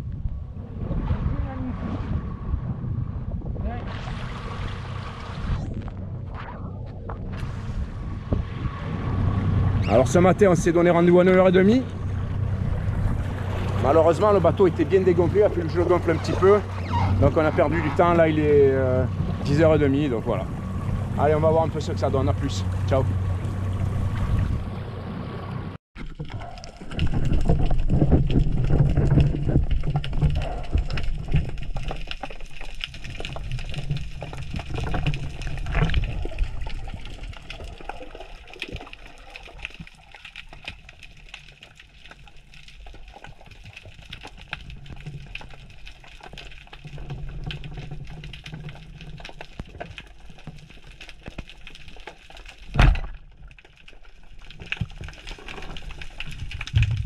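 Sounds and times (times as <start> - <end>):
rushing bubbling water underwater: 0.0 - 57.0.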